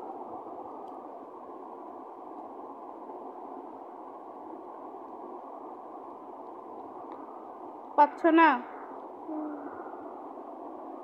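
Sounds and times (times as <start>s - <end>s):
low room noise hiss: 0.0s - 11.0s.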